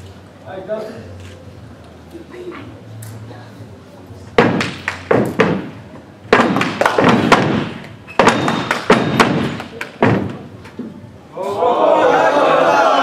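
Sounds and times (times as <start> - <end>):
stomps and hand slaps: 4.4 - 5.7, 6.3 - 10.4.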